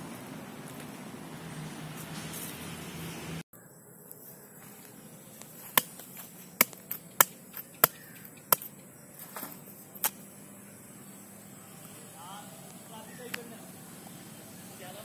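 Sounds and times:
knife chopping into pod husk: 5.6s - 8.7s.

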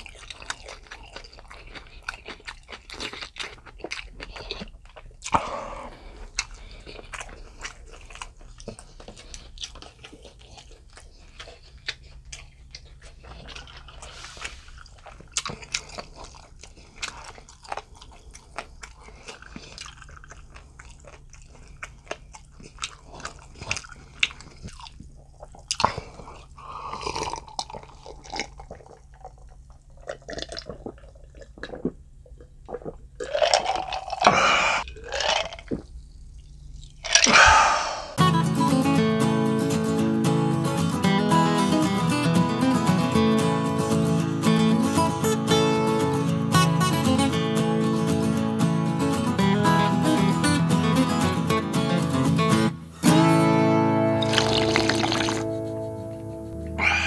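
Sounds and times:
close chewing mouth sounds: 0.0s - 37.4s, 54.2s - 57.0s.

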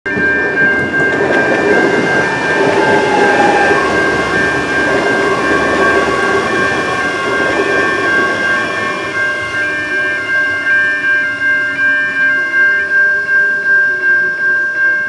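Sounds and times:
train wheels rumbling on rail: 0.1s - 10.8s
electric train motor whine: 0.1s - 13.3s.

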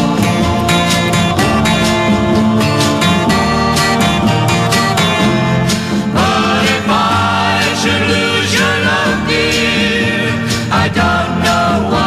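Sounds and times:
country acoustic guitar music: 0.0s - 12.0s
wavering melody line: 0.2s - 7.5s.

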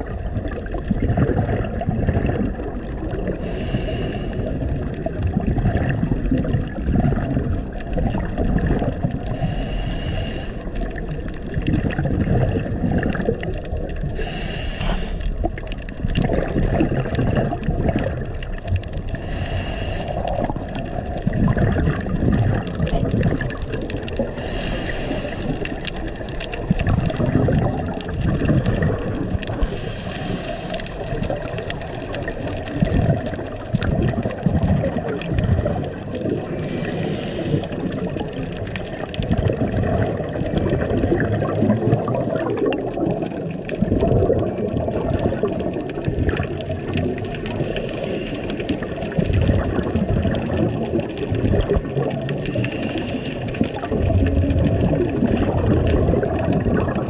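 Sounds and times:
underwater bubbling: 0.0s - 57.0s
regulator hiss: 9.4s - 10.6s, 14.2s - 15.2s, 19.2s - 20.2s, 24.4s - 25.5s.

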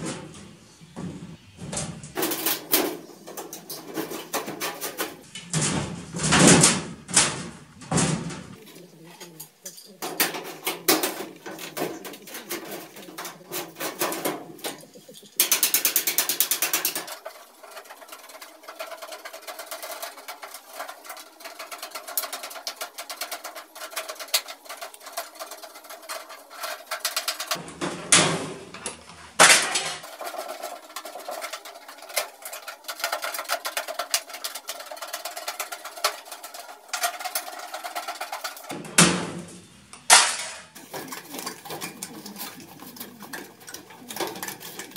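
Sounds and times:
metal tapping: 8.6s - 29.0s.

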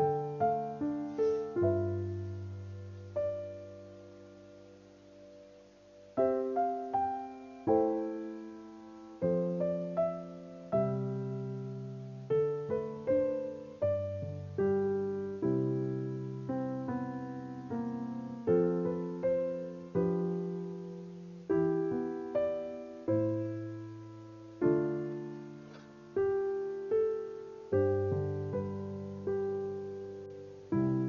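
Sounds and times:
slow gentle piano piece: 0.0s - 31.0s.

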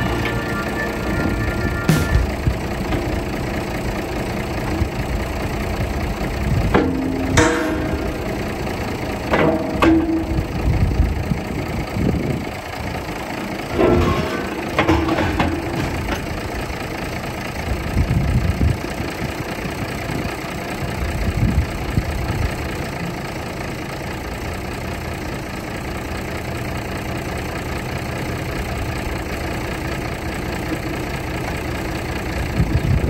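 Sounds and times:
tractor engine running: 0.0s - 33.0s
heavy low thumps: 1.0s - 8.6s.

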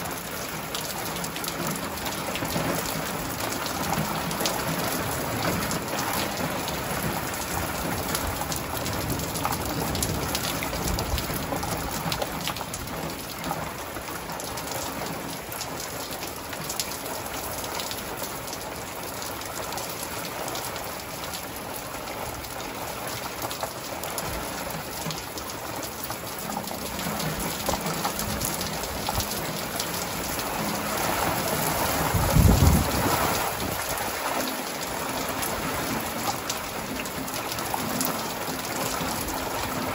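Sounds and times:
steady rain: 0.0s - 39.9s
thunder rumbling: 26.7s - 33.9s.

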